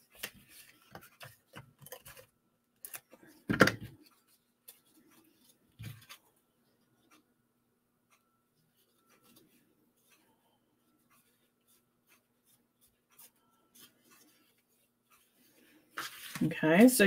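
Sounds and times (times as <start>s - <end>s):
paper rustling and ticks: 0.0s - 6.2s, 11.0s - 17.0s.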